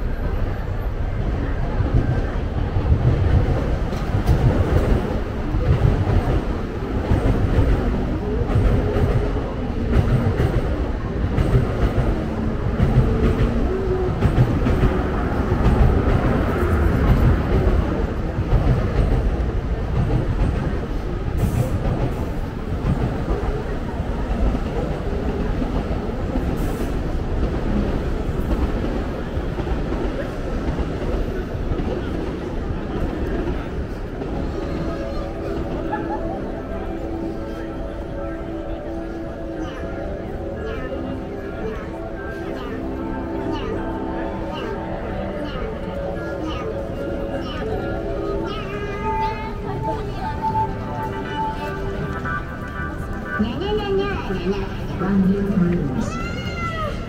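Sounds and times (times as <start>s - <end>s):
train rumbling past: 0.0s - 57.0s
train wheel clatter: 1.7s - 36.0s.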